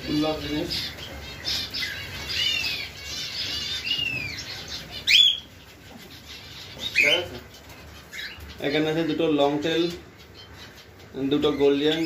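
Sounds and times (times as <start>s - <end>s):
cage birds chirping and calling: 0.0s - 12.0s.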